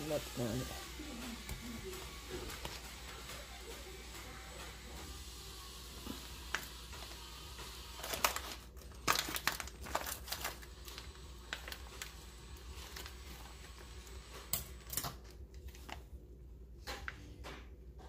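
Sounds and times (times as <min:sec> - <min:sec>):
plastic bag crinkling: 0:06.4 - 0:16.1.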